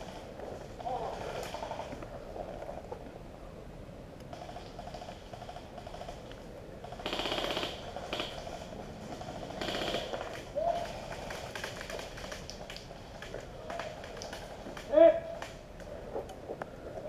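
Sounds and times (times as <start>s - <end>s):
airsoft guns firing bursts: 6.8s - 15.5s.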